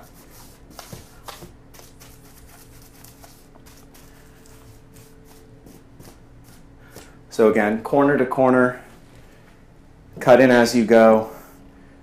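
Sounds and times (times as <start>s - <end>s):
paintbrush strokes on wall: 0.0s - 7.1s.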